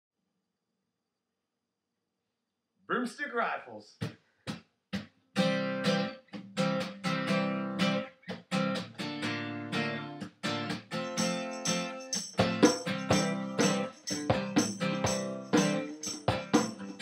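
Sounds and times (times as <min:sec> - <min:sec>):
acoustic guitars strumming: 0:04.9 - 0:17.0
hand drum keeping time: 0:12.1 - 0:17.0.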